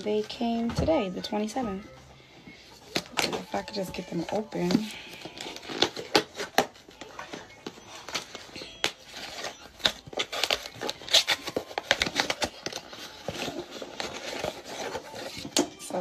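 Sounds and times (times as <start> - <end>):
packaging crinkling and tearing: 2.8 - 16.0.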